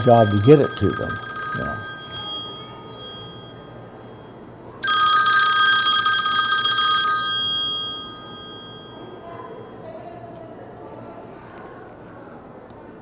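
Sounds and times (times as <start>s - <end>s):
mobile phone ringtone: 0.0s - 9.7s.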